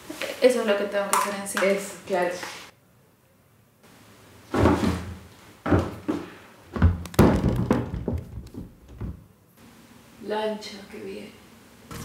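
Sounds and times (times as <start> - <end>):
heavy knocks and thuds: 4.6 - 9.3.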